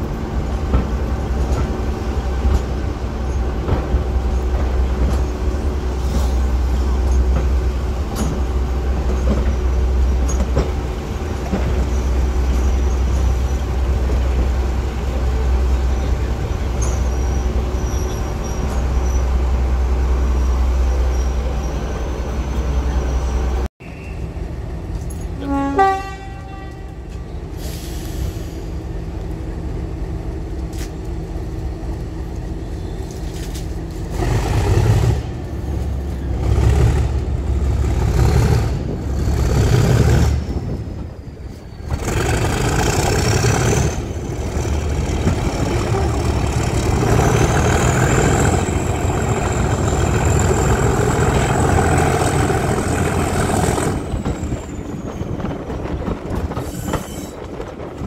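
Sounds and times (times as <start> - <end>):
diesel locomotive engine rumbling: 0.0 - 58.0
locomotive horn toot: 25.4 - 27.1.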